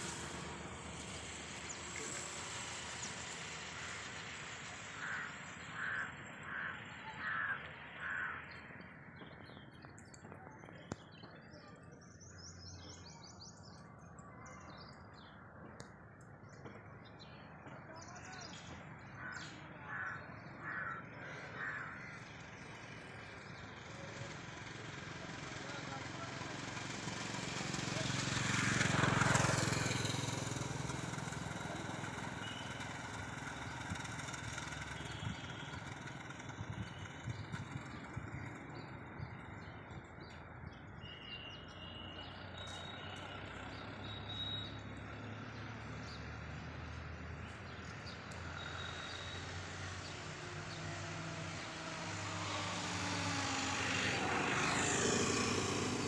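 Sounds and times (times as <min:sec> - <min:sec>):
low hum of traffic: 0:00.0 - 0:56.0
vehicles passing close by: 0:00.0 - 0:56.0
bird chirps: 0:32.1 - 0:33.1, 0:40.3 - 0:45.1.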